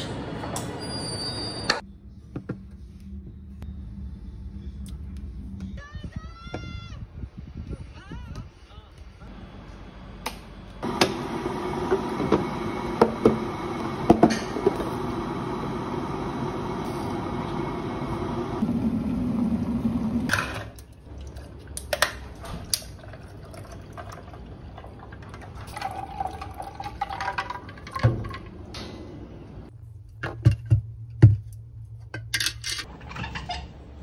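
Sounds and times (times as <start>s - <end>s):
water pouring into mug: 22.8s - 28.0s
tea pouring into glass jar: 22.9s - 28.0s.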